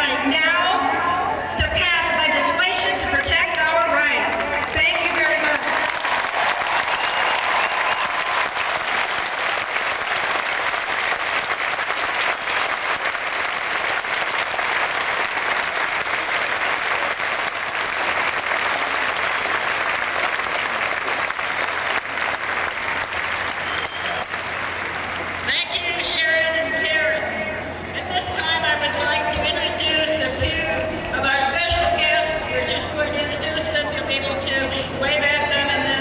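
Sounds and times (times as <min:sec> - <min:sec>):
crowd applauding: 0:04.6 - 0:25.9.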